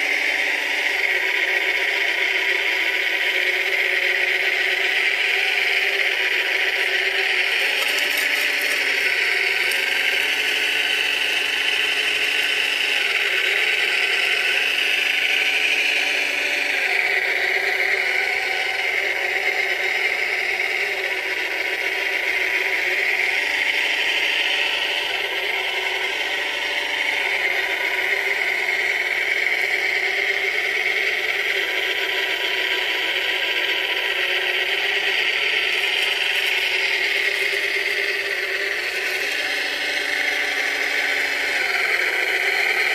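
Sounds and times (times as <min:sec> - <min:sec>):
small electric motors whirring: 0:00.0 - 0:42.9.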